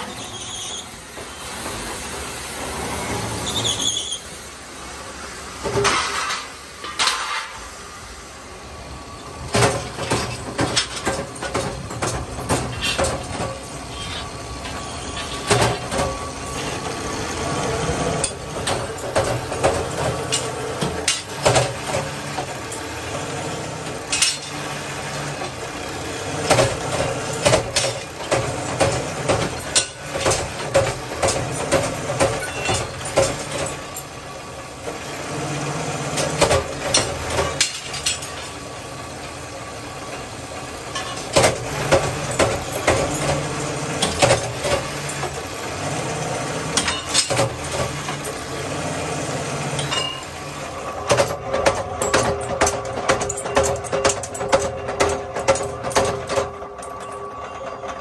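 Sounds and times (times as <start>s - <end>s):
metal-working machine humming: 0.0s - 58.0s
sharp metallic clanks: 24.0s - 25.6s, 46.8s - 48.8s, 49.7s - 58.0s.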